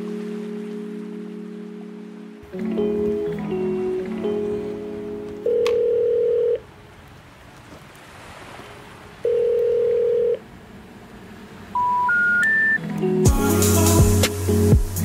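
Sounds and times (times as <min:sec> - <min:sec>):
telephone ringing tone: 0:02.5 - 0:06.6, 0:09.2 - 0:10.4, 0:11.8 - 0:12.8
rising short beeps: 0:11.8 - 0:12.8.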